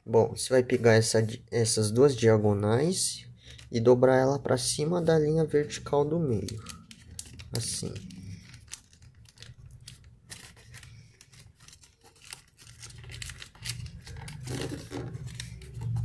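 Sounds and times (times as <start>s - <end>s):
paper rustling and crackling: 4.9s - 16.0s.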